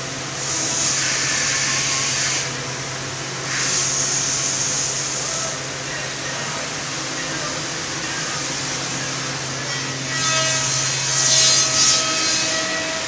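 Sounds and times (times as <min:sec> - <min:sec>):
woodworking machine humming: 0:00.0 - 0:13.0
compressed air hissing blasts: 0:00.4 - 0:02.5, 0:03.4 - 0:05.6.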